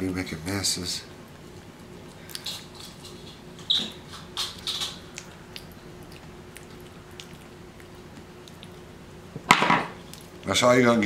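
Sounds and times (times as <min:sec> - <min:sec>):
wet mouth eating sounds: 0:01.8 - 0:09.0, 0:10.0 - 0:10.4.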